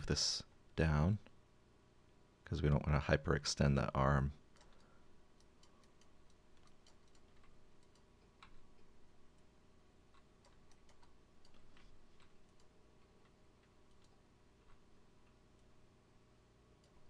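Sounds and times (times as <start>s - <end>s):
computer mouse clicking: 4.5s - 9.5s, 10.1s - 15.8s, 16.8s - 17.0s.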